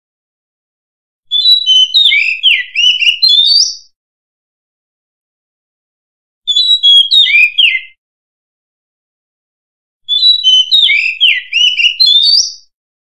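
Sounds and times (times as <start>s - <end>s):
bird singing whistles and chirps: 1.3s - 4.0s, 6.5s - 8.0s, 10.1s - 12.7s.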